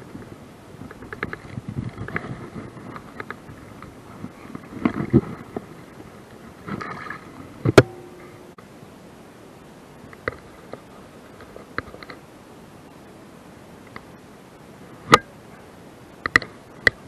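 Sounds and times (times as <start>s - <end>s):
faint clicks and rustles: 0.0s - 8.5s, 10.0s - 13.0s, 13.8s - 14.2s.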